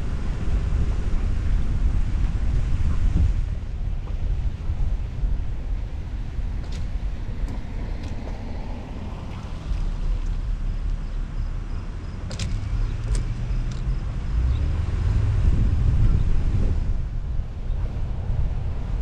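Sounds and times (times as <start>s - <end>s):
road noise: 0.0s - 19.0s
wind buffeting microphone: 0.0s - 19.0s.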